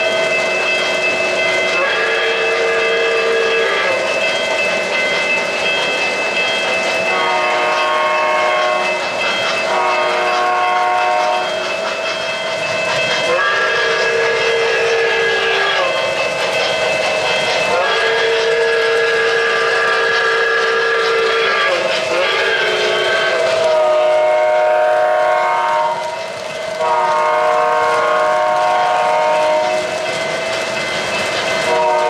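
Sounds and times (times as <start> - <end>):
model train running noise: 0.0 - 32.0
multi-tone warning horn blasts: 1.8 - 4.0, 7.1 - 9.0, 9.7 - 11.5, 13.3 - 15.9, 17.7 - 26.1, 26.8 - 29.9, 31.7 - 32.0.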